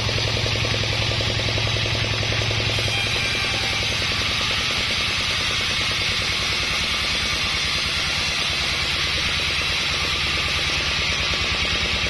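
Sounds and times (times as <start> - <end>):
low motor hum: 0.0 - 12.0
saw blade cutting log: 2.5 - 12.0.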